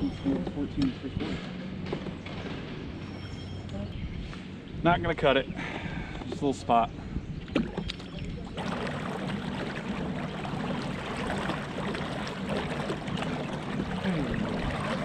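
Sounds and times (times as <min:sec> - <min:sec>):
water swishing and trickling: 0:06.3 - 0:15.0.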